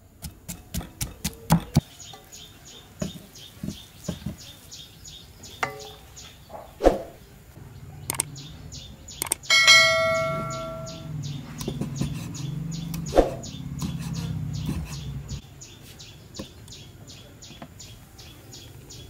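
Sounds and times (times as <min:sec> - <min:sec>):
cleaver chopping on wooden block: 0:00.2 - 0:01.8
mouse click: 0:08.1 - 0:08.3, 0:09.2 - 0:09.5
high chirps: 0:08.1 - 0:15.4
bell chime: 0:09.5 - 0:11.1.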